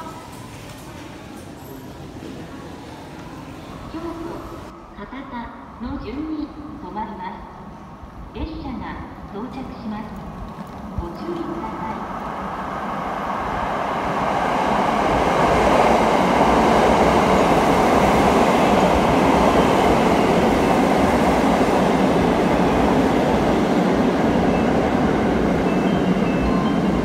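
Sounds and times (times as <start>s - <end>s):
electric train rolling past: 10.1s - 27.0s.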